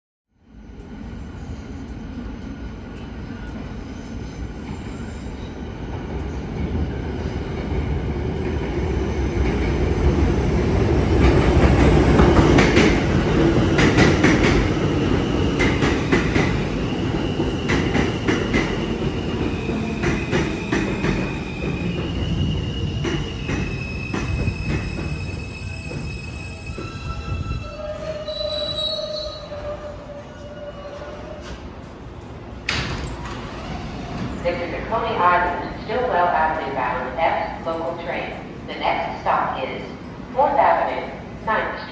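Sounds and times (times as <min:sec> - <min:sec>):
high wheel squeal: 0:21.3 - 0:31.3.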